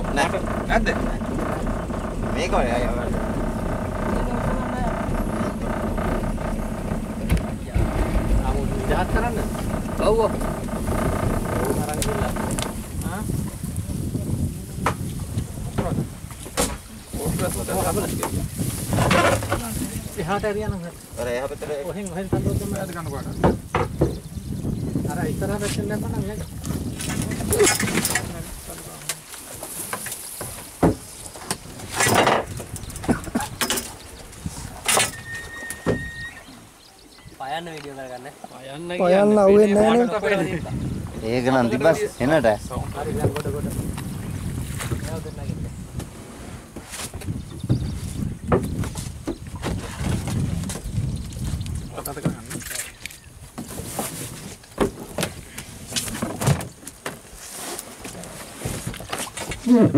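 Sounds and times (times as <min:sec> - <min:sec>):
pole scraping and knocking on boat: 0:00.0 - 0:20.5, 0:21.2 - 0:24.3, 0:25.4 - 0:36.3, 0:41.1 - 0:45.2, 0:45.9 - 0:51.6, 0:52.2 - 0:59.9
thin whistle-like tone: 0:35.1 - 0:36.6.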